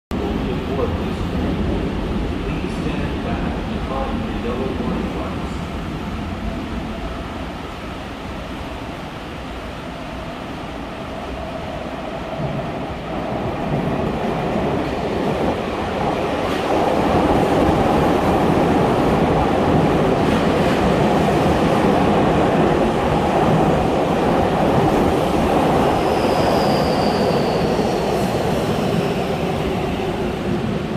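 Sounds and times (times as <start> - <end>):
train running through station: 0.1 - 30.9
high wheel squeal: 26.0 - 28.2.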